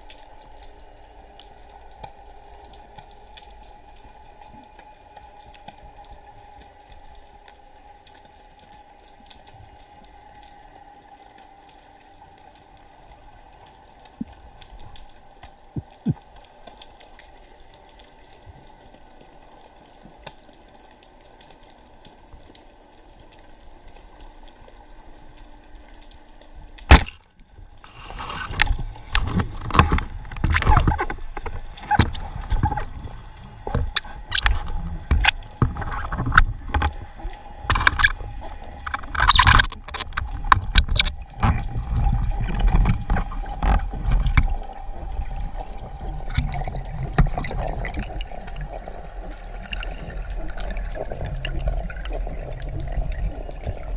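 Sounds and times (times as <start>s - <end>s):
faint humming tones: 0.0s - 53.9s
knocking and splashing: 28.2s - 32.9s, 33.7s - 37.0s.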